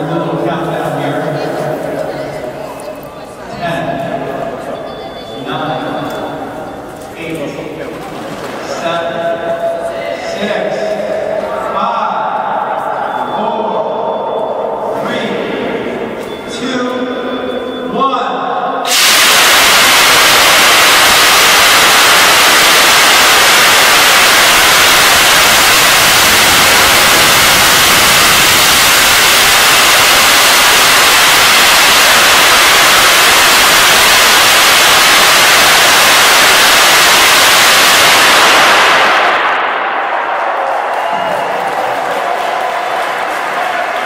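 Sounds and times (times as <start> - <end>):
jetpack thrust jets hissing: 18.9 - 39.8.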